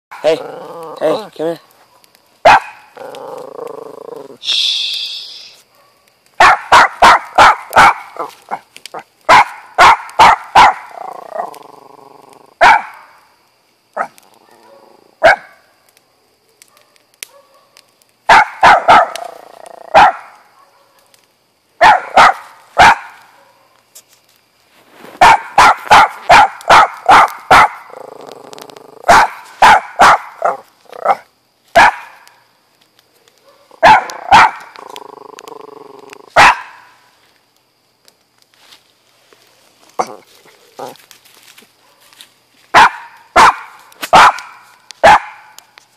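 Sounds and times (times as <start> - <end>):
small dog barking: 1.9 - 2.9, 5.7 - 11.1, 12.6 - 13.0, 14.0 - 15.6, 16.6 - 21.1, 21.8 - 23.8, 25.2 - 27.9, 29.0 - 32.2, 33.4 - 34.8, 36.3 - 36.9, 41.8 - 45.6.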